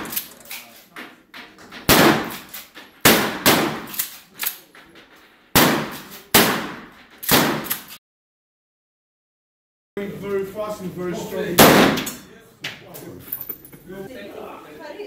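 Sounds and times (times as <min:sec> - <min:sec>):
loud shotgun shots: 0:01.8 - 0:04.2, 0:05.5 - 0:08.0, 0:11.6 - 0:12.2.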